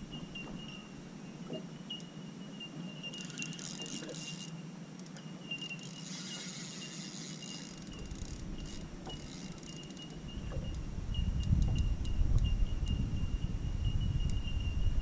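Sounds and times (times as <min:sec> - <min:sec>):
thin high whine: 0:00.1 - 0:04.6, 0:05.2 - 0:11.4
fishing reel ticking: 0:02.9 - 0:13.0.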